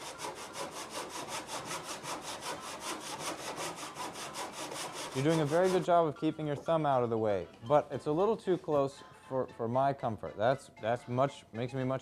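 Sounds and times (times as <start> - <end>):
hand saw cutting wood: 0.0 - 6.1.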